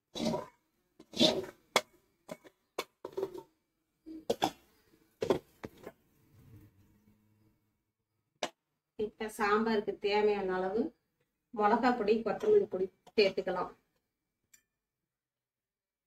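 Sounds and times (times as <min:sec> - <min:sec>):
metal ladle scraping pan: 0:00.0 - 0:03.5.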